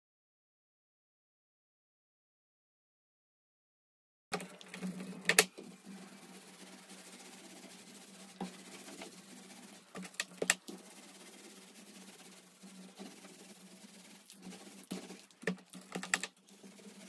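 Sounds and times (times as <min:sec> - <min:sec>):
paint roller clicks and knocks: 0:04.4 - 0:05.7, 0:09.9 - 0:10.8, 0:14.9 - 0:16.4.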